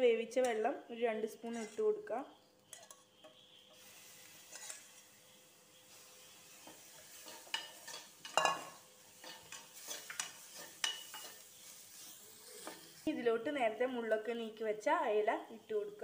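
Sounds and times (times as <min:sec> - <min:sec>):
light sizzle: 0:00.0 - 0:16.0
spoon scraping steel pan: 0:01.4 - 0:01.8, 0:02.7 - 0:05.1, 0:06.0 - 0:13.0.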